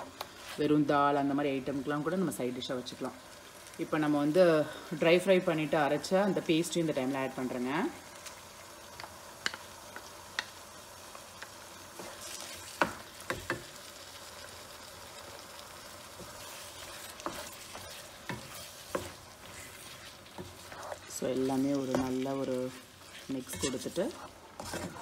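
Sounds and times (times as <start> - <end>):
chicken sizzling in a frying pan: 0.0 - 25.0.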